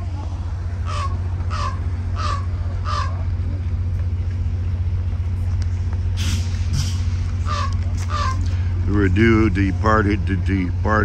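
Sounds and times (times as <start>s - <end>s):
diesel train idling: 0.0s - 11.0s
harsh animal calls: 0.7s - 3.3s, 7.4s - 8.7s.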